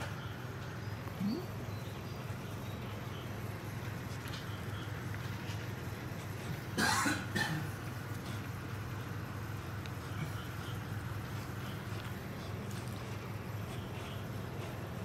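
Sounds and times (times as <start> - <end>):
steady low hum: 0.0 - 15.0
cough-like burst of breath: 6.7 - 7.8.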